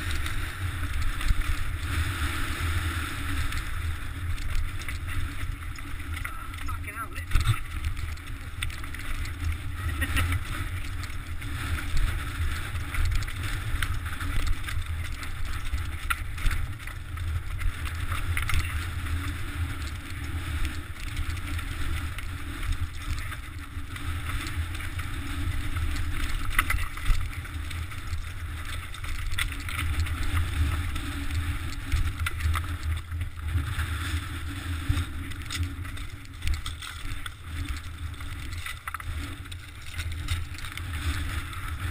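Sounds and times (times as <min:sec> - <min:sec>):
bike rattling and knocking on stones: 0:00.0 - 0:41.9
wind and vibration rumble: 0:00.0 - 0:41.9.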